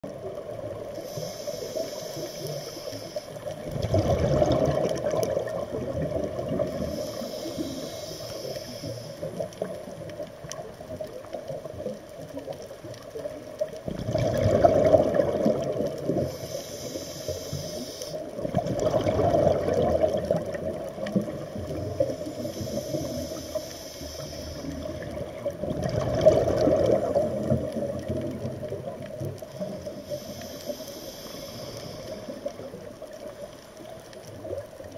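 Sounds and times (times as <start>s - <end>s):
regulator hiss on inhale: 0.8s - 3.7s, 6.0s - 10.1s, 15.9s - 18.6s, 21.4s - 25.5s, 29.2s - 33.5s
exhaled bubbles rushing: 3.6s - 6.8s, 13.6s - 16.3s, 18.4s - 22.3s, 24.7s - 29.5s.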